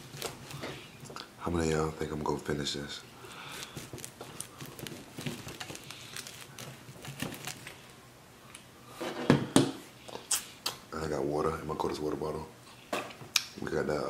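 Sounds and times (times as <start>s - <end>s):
wet mouth sounds: 10.1s - 10.8s.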